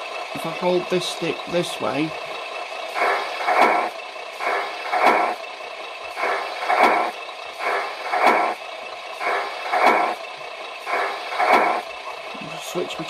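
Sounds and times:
steady background sound: 0.2s - 13.0s
gear shift sound bursts: 2.2s - 12.3s.

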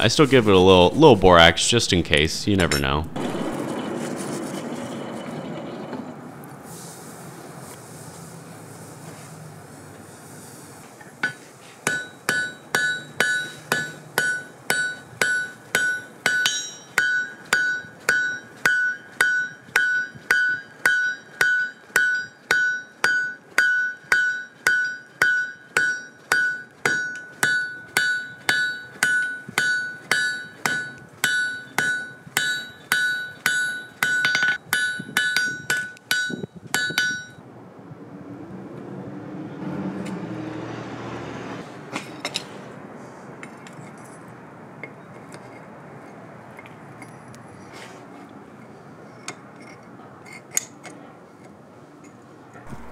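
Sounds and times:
low rushing noise: 0.0s - 4.6s, 52.7s - 52.9s
hammer blows ringing on anvil: 11.2s - 37.4s, 52.7s - 52.9s.

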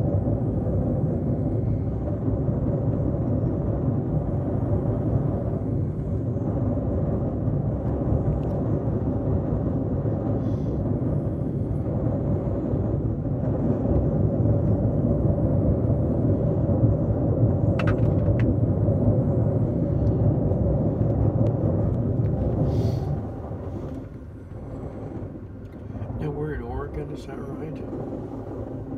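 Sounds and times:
train rumbling on rails: 0.0s - 28.9s.

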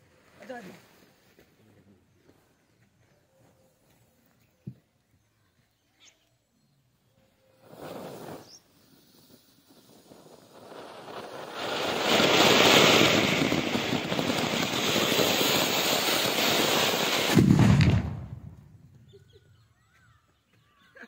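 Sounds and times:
firework fountain hissing: 7.6s - 18.6s.

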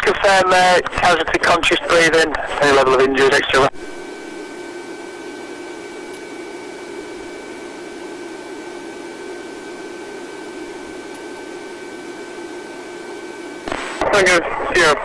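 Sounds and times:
faint high whines: 3.4s - 15.0s.

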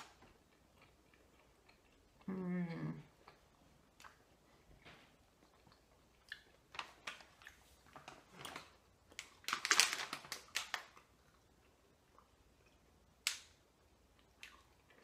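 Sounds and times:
plastic bag crinkling: 6.7s - 11.0s.

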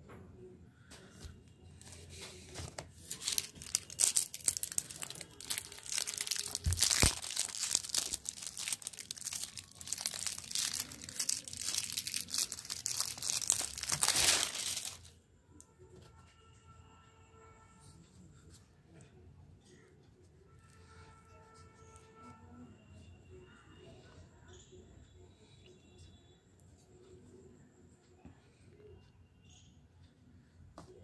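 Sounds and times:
plastic wrapper crinkling and tearing: 2.6s - 15.1s.

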